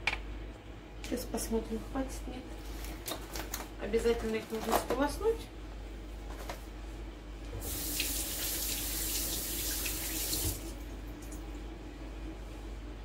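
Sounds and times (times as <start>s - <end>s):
tap running into sink: 9.8s - 10.6s.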